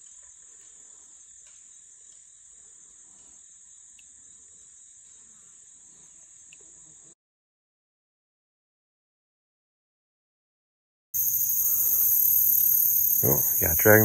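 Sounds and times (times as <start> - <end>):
insects trilling: 0.0 - 7.2, 11.2 - 14.0.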